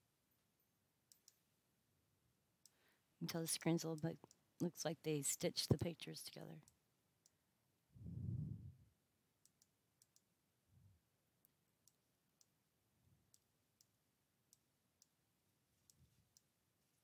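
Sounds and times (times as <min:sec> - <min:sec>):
computer mouse clicks: 0:01.1 - 0:01.4, 0:09.4 - 0:10.3
soft low sound: 0:08.0 - 0:09.0.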